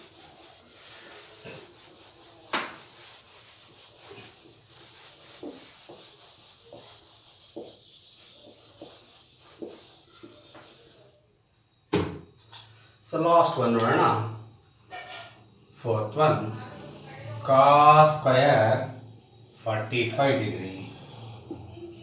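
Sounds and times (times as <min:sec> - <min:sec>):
eraser rubbing on whiteboard: 0:00.0 - 0:11.2.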